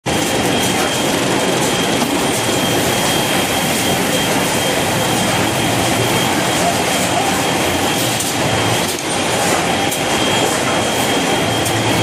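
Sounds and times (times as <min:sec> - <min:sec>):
high steady machine whine: 0:00.0 - 0:12.0
packing machine clatter: 0:00.1 - 0:12.0.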